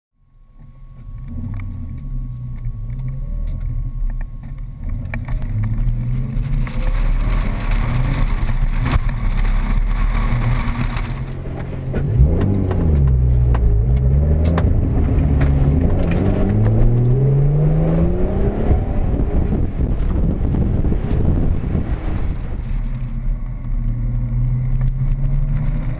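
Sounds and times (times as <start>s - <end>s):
car engine revving and shifting: 1.0s - 25.9s.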